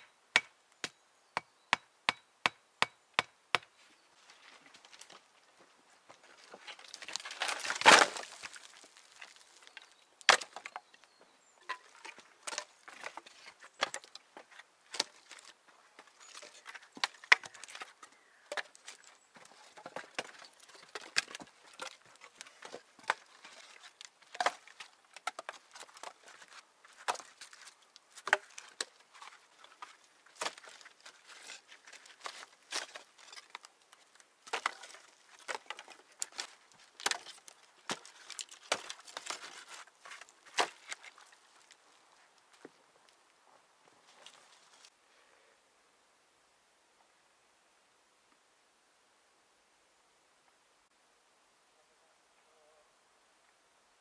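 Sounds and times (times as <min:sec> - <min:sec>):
wood crunching burst: 0:06.6 - 0:10.8.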